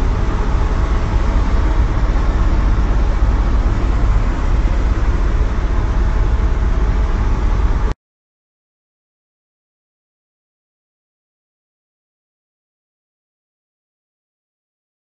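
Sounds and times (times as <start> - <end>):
helicopter turbine and rotor: 0.0 - 7.9.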